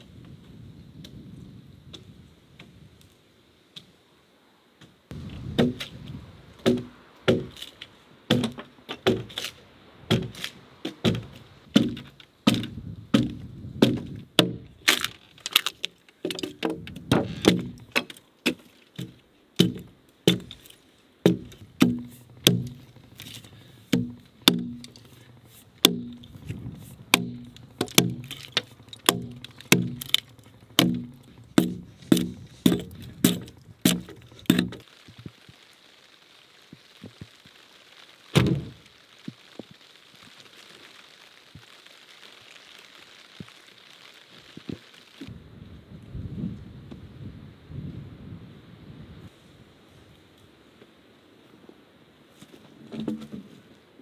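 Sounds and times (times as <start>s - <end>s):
axe chopping log: 5.4s - 6.0s, 6.6s - 7.6s, 8.3s - 9.5s, 10.1s - 15.1s, 16.3s - 20.6s, 21.2s - 22.8s, 23.9s - 25.1s, 25.8s - 34.8s.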